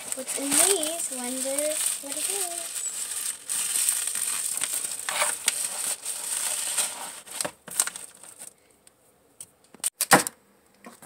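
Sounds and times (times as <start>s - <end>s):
plastic packaging crinkling: 0.0s - 8.6s.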